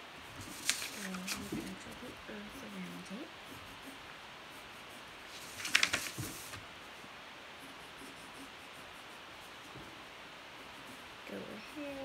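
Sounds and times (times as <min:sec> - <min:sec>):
faint steady hiss: 0:00.0 - 0:12.0
pencil scratching on paper: 0:00.4 - 0:05.2, 0:07.6 - 0:09.8.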